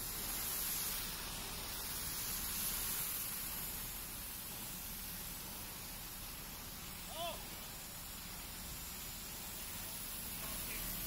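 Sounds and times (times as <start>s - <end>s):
high-pressure water jet hissing: 0.0s - 11.0s.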